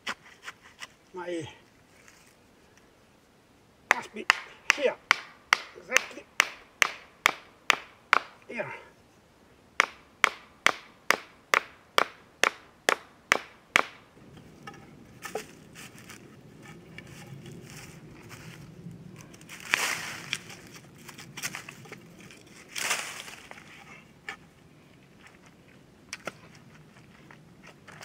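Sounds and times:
scraping and rustling of soil: 0.0s - 3.1s, 14.2s - 28.0s
hatchet knocking wooden stake: 3.9s - 8.5s, 9.8s - 14.0s.

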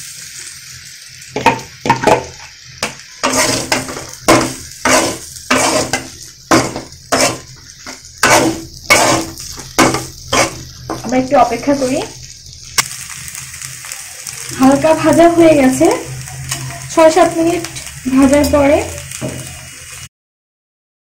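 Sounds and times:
frying sizzle: 0.0s - 20.1s
metal spatula scraping a pan: 1.9s - 12.0s, 15.9s - 19.7s.

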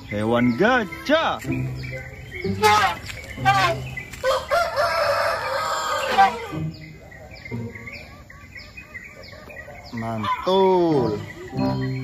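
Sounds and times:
elephant trumpeting: 5.9s - 6.6s.

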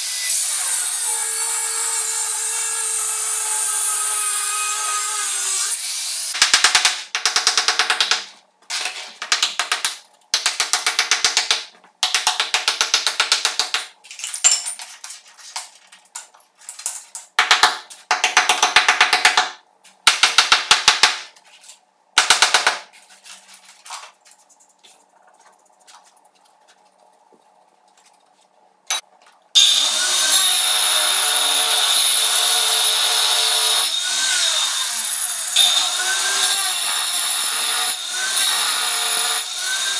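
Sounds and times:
chipping hammer chiselling tiles: 6.3s - 14.0s, 17.4s - 21.3s, 22.2s - 22.9s.

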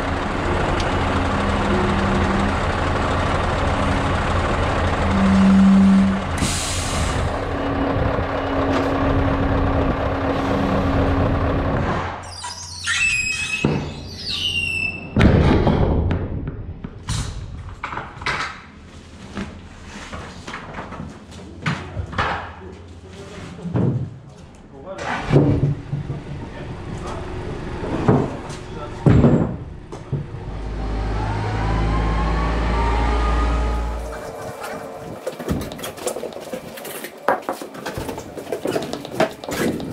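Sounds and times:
truck engine idling: 0.0s - 11.8s, 25.7s - 37.3s
squeaks and knocks in trailer: 12.2s - 15.2s, 34.0s - 39.9s.

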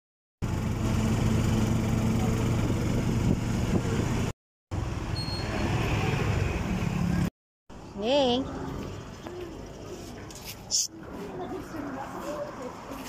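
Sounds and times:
small vehicle engine running: 0.4s - 4.3s
road and wind noise: 0.4s - 13.0s.

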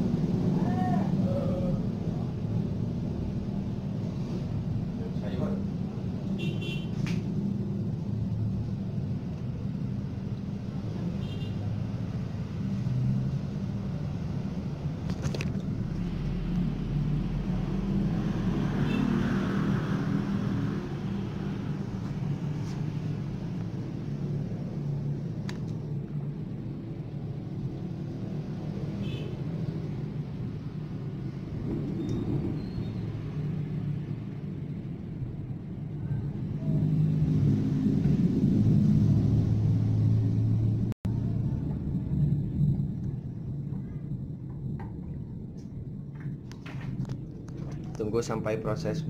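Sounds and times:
low background rumble: 20.1s - 49.0s.

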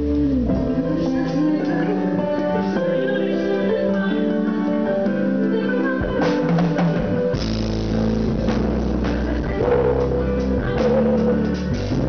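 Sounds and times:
held low bass line: 0.0s - 2.3s, 7.0s - 12.0s
electric guitar: 0.0s - 12.0s
drum kit hits: 6.0s - 12.0s.

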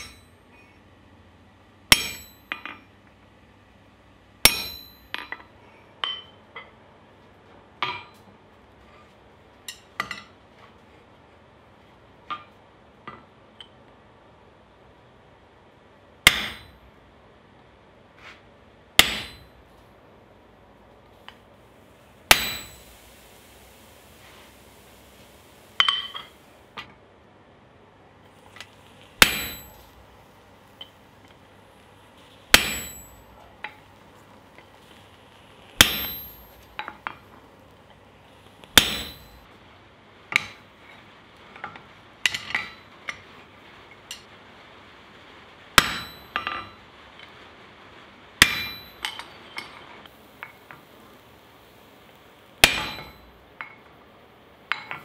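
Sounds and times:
hammer striking steel on anvil: 0.0s - 0.7s, 1.9s - 3.0s, 4.4s - 6.7s, 7.8s - 8.3s, 16.2s - 16.9s, 19.0s - 19.8s, 22.2s - 23.6s, 25.1s - 26.4s, 28.5s - 31.4s, 32.2s - 37.5s, 38.6s - 39.5s, 41.6s - 43.2s, 45.8s - 46.8s, 48.4s - 49.8s, 52.6s - 53.9s, 54.7s - 55.0s.

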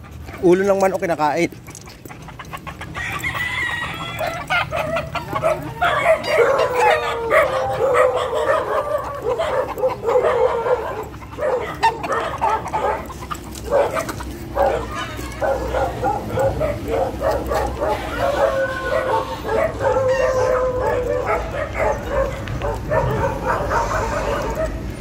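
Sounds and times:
hens clucking: 0.0s - 25.0s
roosters crowing: 0.0s - 25.0s
dog barking: 4.2s - 24.9s.

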